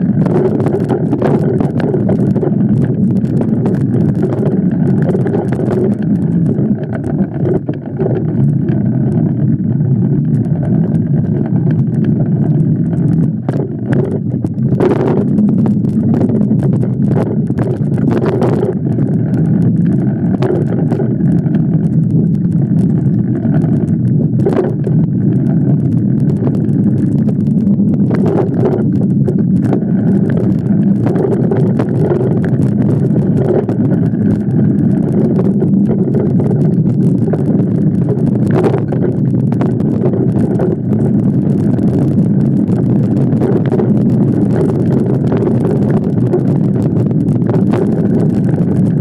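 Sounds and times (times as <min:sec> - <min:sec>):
wind rush on microphone: 0:00.0 - 0:49.0.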